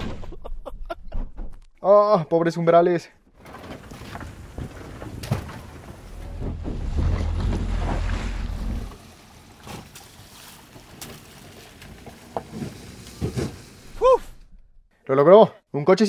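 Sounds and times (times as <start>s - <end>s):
car moving over dirt track: 3.4s - 14.0s.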